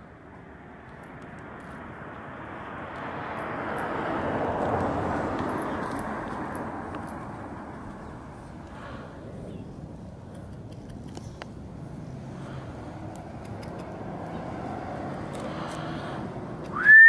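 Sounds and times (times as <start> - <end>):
vehicle driving past: 1.5 - 9.1, 11.8 - 16.6.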